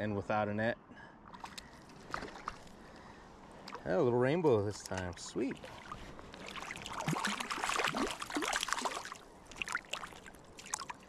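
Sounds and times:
river water flowing: 4.6s - 11.0s
fish splashing at water surface: 5.6s - 11.0s.

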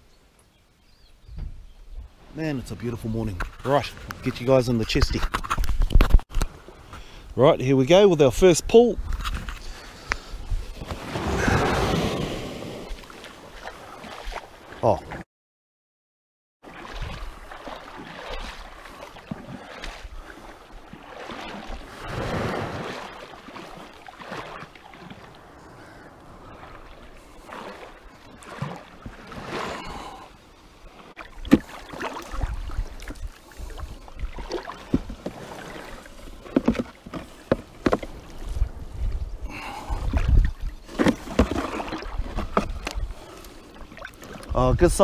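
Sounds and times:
wind buffeting microphone: 8.3s - 13.0s, 32.3s - 35.2s, 38.0s - 40.9s
water sloshing and lapping: 9.0s - 15.2s, 16.6s - 45.0s.

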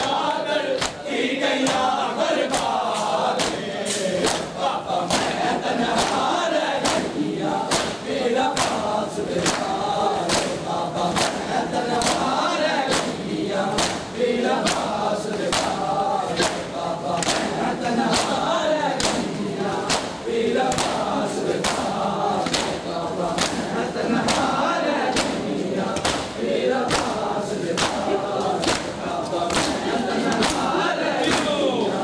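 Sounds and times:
men chanting together: 0.0s - 32.0s
hands slapping chests: 0.8s - 31.7s.

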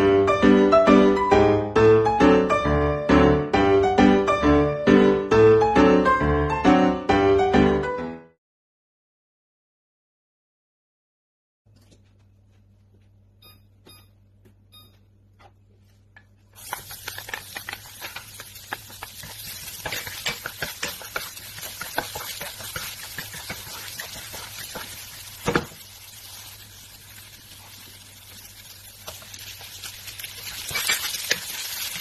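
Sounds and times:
garlic sizzling in oil: 16.5s - 32.0s
wooden spoon scraping a pan: 16.6s - 26.5s.

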